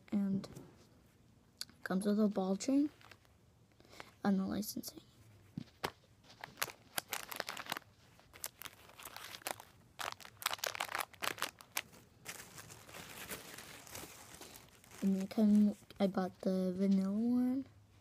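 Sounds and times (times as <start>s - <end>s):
plastic bags crinkling: 6.2s - 16.0s.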